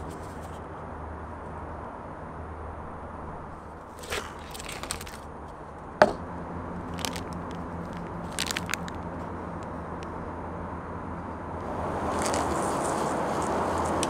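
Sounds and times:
steady low hum: 0.0 - 14.0
plastic sachets crinkling: 3.8 - 5.3, 6.8 - 9.8, 12.1 - 13.0.

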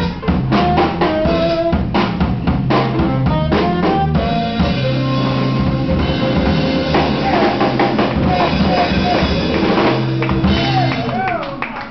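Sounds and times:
jazz band playing: 0.0 - 11.4.

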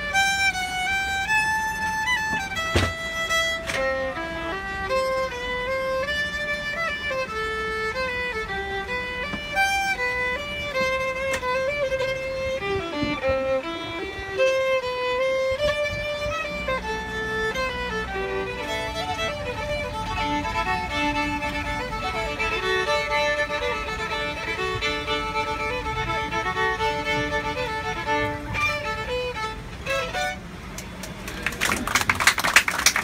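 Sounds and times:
fiddle playing fast tune: 0.0 - 31.3
airliner cabin hum: 0.0 - 33.0
people clapping: 30.7 - 33.0.

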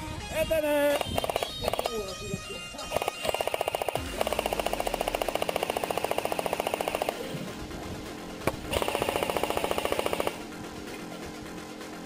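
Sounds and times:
airsoft machine gun bursts: 0.9 - 1.9, 2.9 - 7.2, 8.7 - 10.4.

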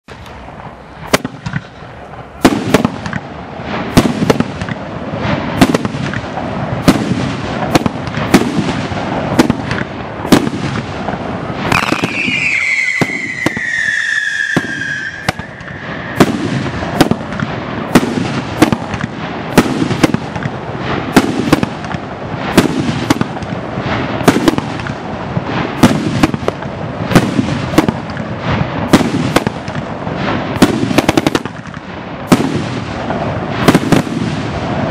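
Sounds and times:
firework bangs: 0.1 - 34.9
rumble and crackle of fireworks: 0.1 - 34.9
falling whistling tone: 11.8 - 16.2.

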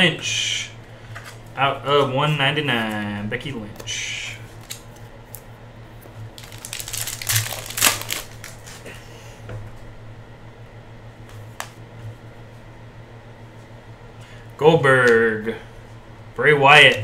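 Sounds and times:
low steady hum: 0.0 - 17.0
foil wrapper crinkling: 6.3 - 9.0
cards clicking and rustling: 6.4 - 8.8.

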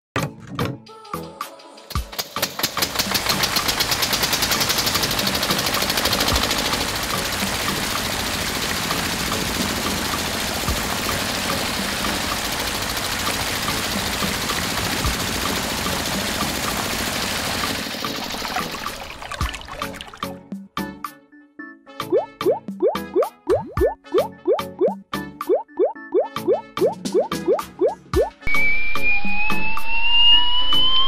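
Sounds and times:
small motor starting and running: 2.8 - 19.2.

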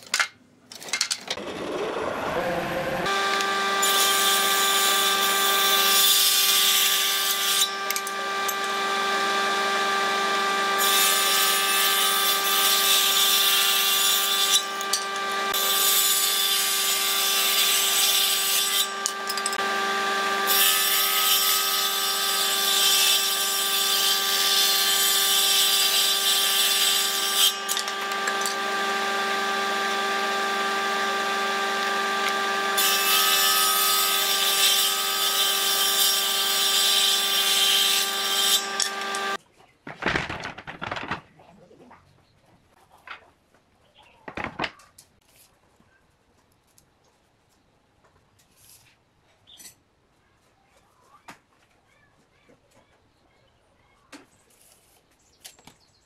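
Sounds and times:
saw cutting wood: 1.4 - 39.4
table saw motor humming: 1.4 - 39.4.

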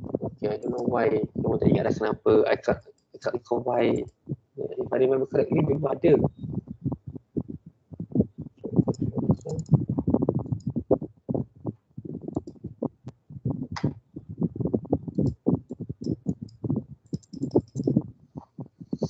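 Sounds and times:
keyboard typing: 8.5 - 11.0, 14.8 - 18.6.

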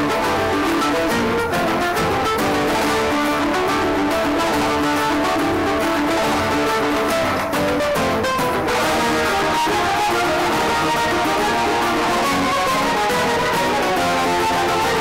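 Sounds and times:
instrumental dance music: 0.0 - 15.0.

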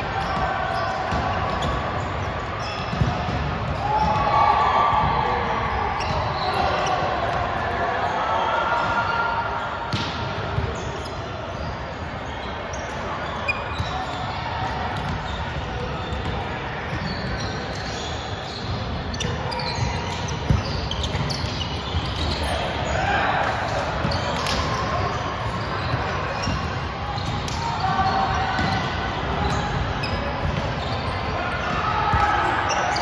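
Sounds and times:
sneakers squeaking on court: 0.0 - 7.4, 8.8 - 33.0
players' voices: 0.0 - 33.0.

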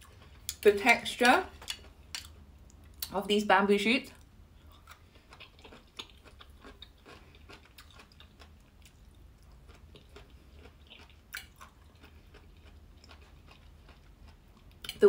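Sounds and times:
chewing crunchy bamboo: 0.0 - 0.7, 4.2 - 15.0.

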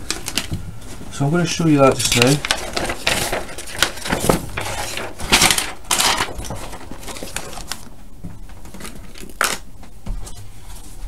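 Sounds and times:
notebook page rustling: 1.1 - 7.9.

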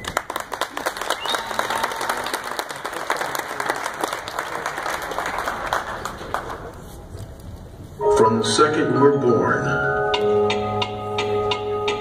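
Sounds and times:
audience applauding: 0.0 - 6.8.

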